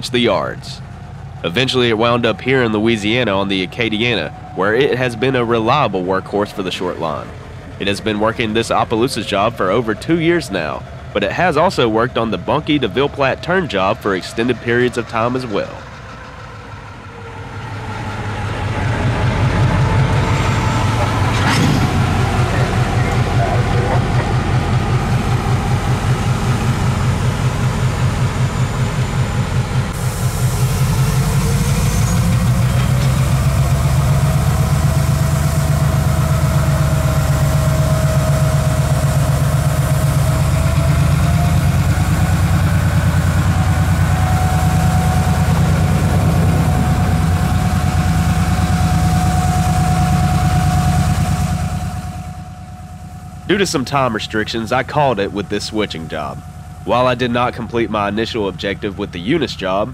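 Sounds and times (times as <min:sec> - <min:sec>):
diesel engine throbbing: 0:00.0 - 0:59.9.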